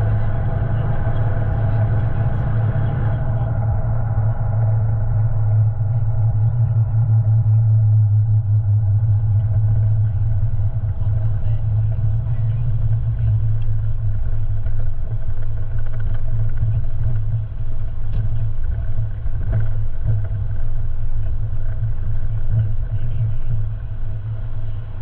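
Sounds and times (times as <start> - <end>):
vehicle engine and road noise: 0.0 - 25.0.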